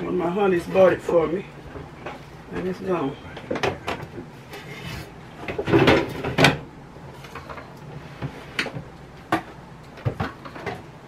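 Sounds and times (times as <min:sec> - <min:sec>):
kitchen things clattering: 0:03.5 - 0:07.7.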